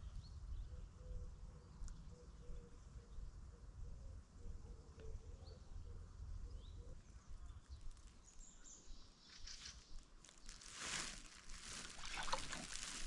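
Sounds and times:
faint rustling: 9.3 - 13.0.

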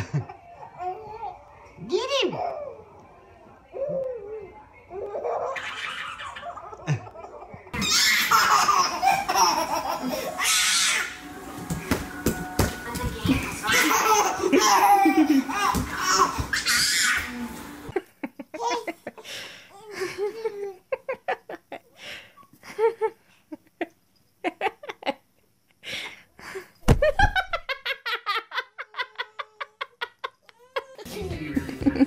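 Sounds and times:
people laughing and giggling: 0.0 - 0.5, 5.8 - 10.4, 13.2 - 15.9, 27.0 - 32.0.

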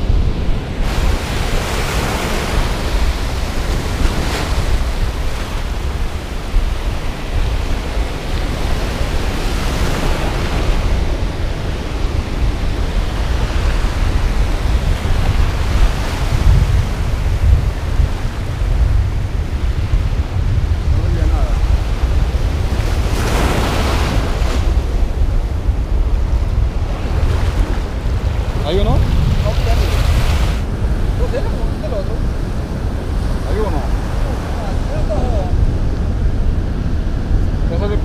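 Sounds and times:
ocean surf breaking: 0.0 - 38.0
wind buffeting microphone: 0.0 - 38.0.

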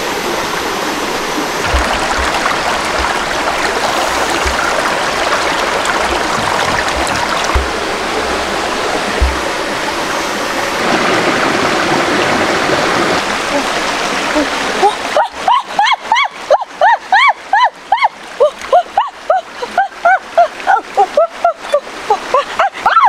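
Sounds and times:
stream running over rocks: 0.0 - 23.0
low bumps: 1.6 - 13.3.

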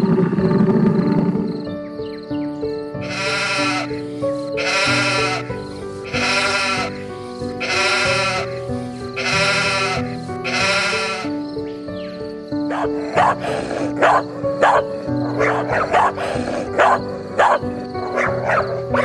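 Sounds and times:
background music: 0.0 - 19.0
animal bleating: 3.0 - 4.0, 4.6 - 11.4.

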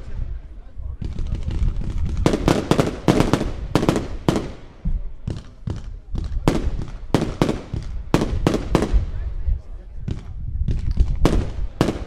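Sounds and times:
fireworks bangs: 0.9 - 9.4, 10.0 - 12.0.

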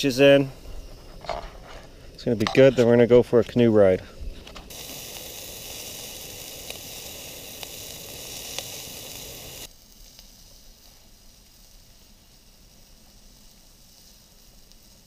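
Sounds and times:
hot dogs sizzling in a pot: 0.0 - 15.0
sharp pops of frying: 4.3 - 11.3.

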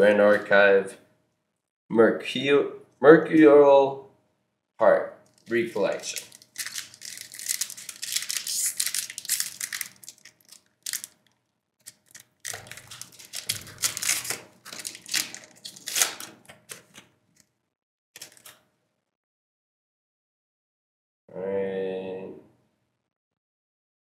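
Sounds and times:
foil wrapper crinkling: 5.3 - 17.1, 18.2 - 18.6.

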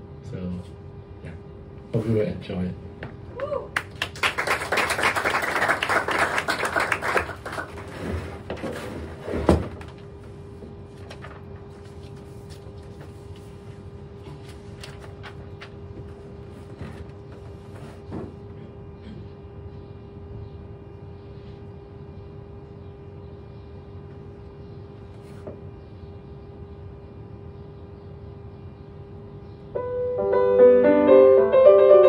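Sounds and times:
steady room hum: 0.0 - 32.0
audience applause: 3.8 - 8.1
faint shuffles and creaks: 7.8 - 18.5, 25.0 - 25.6.

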